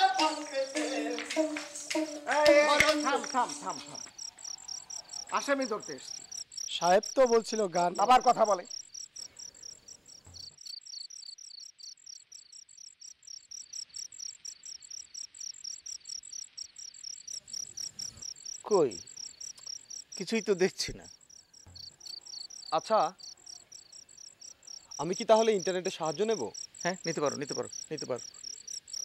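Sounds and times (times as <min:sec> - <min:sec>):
person's voice: 0:00.0 - 0:04.1, 0:05.3 - 0:06.1, 0:06.7 - 0:08.7
crickets chirping: 0:00.0 - 0:29.0.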